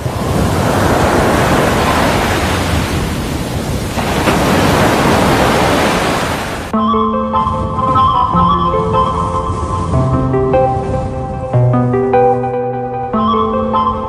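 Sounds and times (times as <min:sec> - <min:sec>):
ocean surf rushing: 0:00.0 - 0:14.0
melodic music track: 0:06.7 - 0:14.0.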